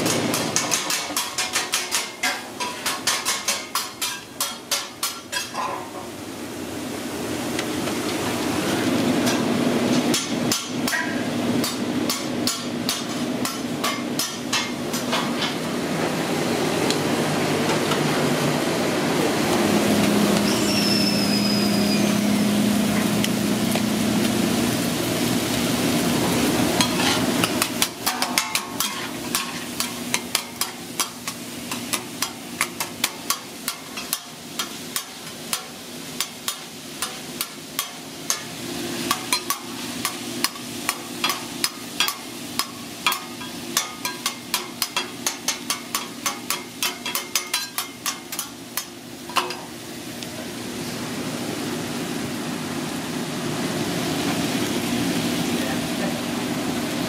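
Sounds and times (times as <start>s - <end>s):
meat sizzling on a griddle: 20.4s - 50.1s, 51.5s - 55.8s
metal spatulas scraping griddle: 26.8s - 38.5s.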